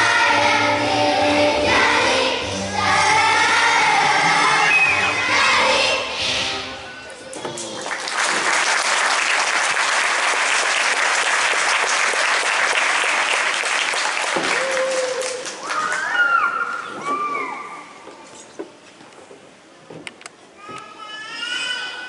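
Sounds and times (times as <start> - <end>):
audience applause: 7.6 - 16.2
children's voices: 20.6 - 22.0.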